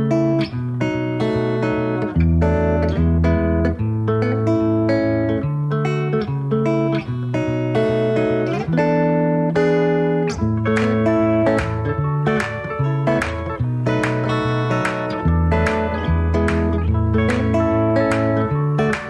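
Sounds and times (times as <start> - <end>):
plucked guitar music: 0.0 - 19.0.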